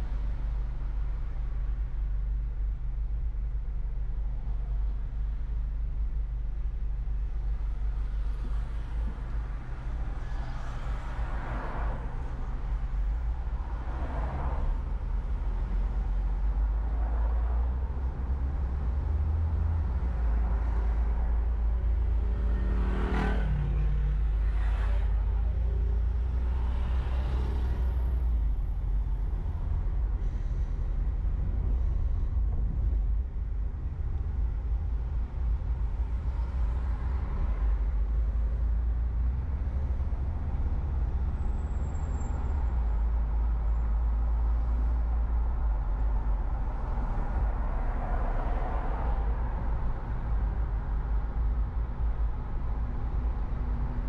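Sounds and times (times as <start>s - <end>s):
road and engine rumble: 0.0s - 54.0s
vehicles swishing past: 13.3s - 33.2s.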